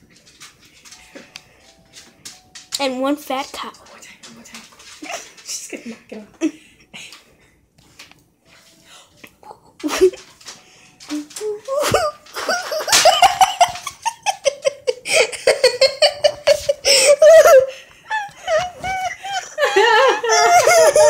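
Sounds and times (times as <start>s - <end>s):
person laughing hard: 11.8s - 21.0s.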